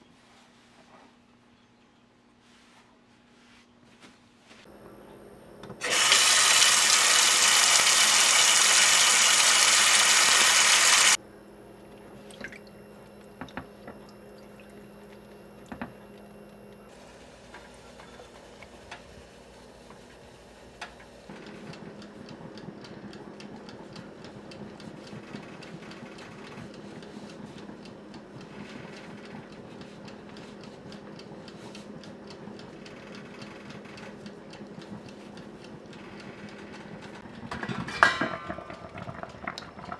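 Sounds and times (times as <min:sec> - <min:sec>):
tap water running into pot: 0:05.8 - 0:11.2, 0:38.4 - 0:39.9.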